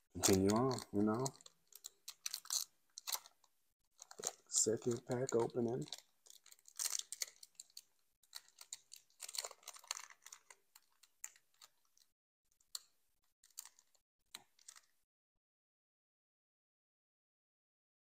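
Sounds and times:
foil wrapper crinkling: 0.2s - 12.1s, 13.4s - 14.9s.

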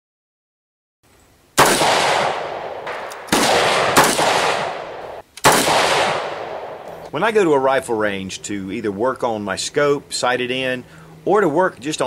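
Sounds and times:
rifle gunshots echoing: 1.6s - 7.0s.

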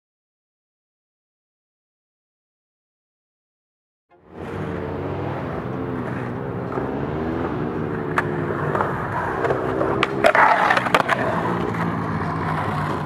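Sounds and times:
skateboard wheels rolling on concrete: 4.2s - 13.0s
skateboard clacks on ramp: 8.1s - 13.0s.

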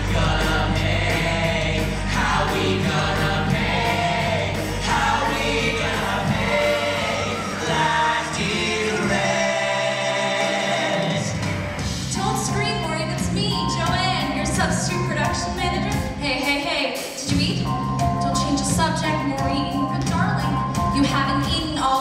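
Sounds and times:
cast singing through microphones: 0.0s - 11.5s
loud rock accompaniment: 0.0s - 13.4s.

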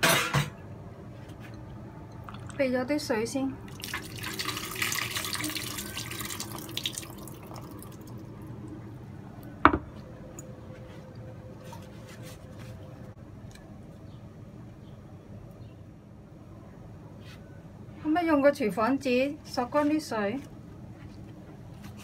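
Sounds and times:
low background hum: 0.0s - 22.0s
water swishing and splashing in a bowl: 2.1s - 2.7s, 3.6s - 8.8s.

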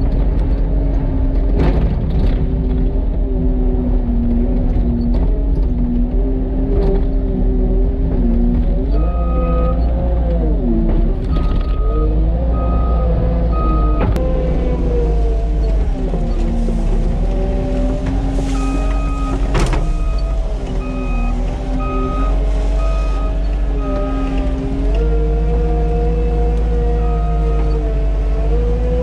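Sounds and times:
diesel engine working under load: 0.0s - 29.0s
backup alarm beeping: 11.3s - 14.1s, 18.5s - 24.4s.

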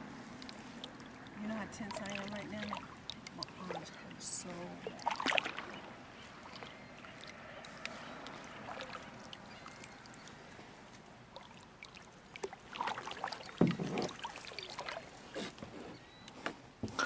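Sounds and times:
faint water lapping: 0.0s - 17.0s
small clicks and knocks on hull: 6.5s - 17.0s.

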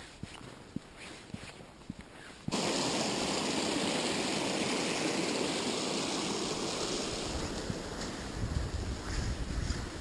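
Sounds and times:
creek rushing over rocks: 2.5s - 10.0s.

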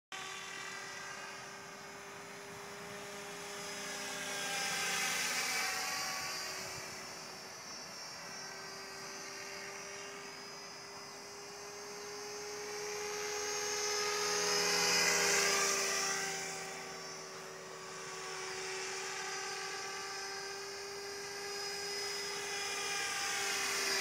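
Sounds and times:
model helicopter whine: 0.1s - 24.0s.

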